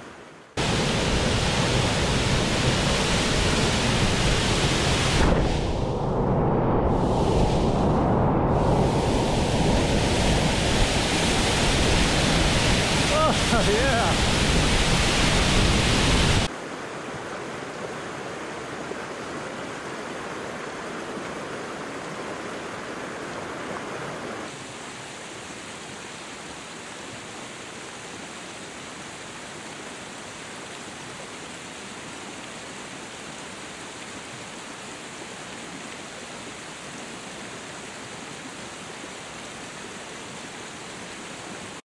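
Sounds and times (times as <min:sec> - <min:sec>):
waterfall rushing: 0:00.6 - 0:05.8, 0:06.9 - 0:17.4.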